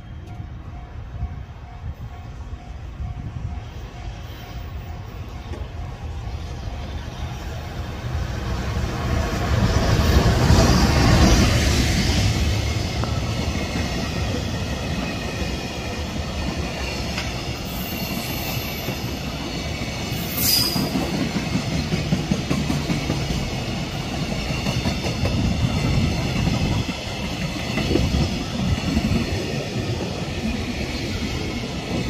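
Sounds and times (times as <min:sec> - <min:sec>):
electric locomotive rumbling: 0:00.0 - 0:32.0
train wheels rolling and clattering: 0:00.0 - 0:32.0
high wheel squeal: 0:17.6 - 0:21.1.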